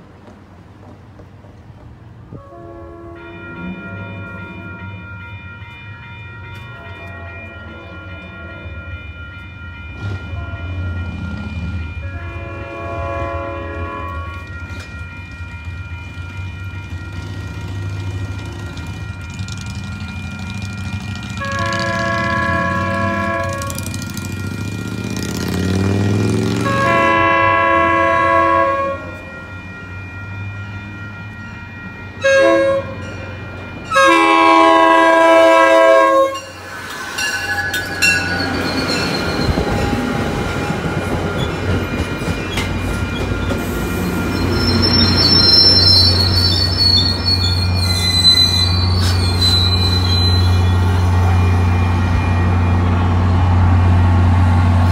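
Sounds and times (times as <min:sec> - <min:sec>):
train rumbling on rails: 0:00.0 - 0:54.9
train horn blasts: 0:02.3 - 0:04.9, 0:10.0 - 0:14.9, 0:21.1 - 0:24.1, 0:25.6 - 0:29.3, 0:32.2 - 0:33.1, 0:33.9 - 0:36.6
high brake squeal: 0:36.6 - 0:39.8, 0:42.4 - 0:51.2.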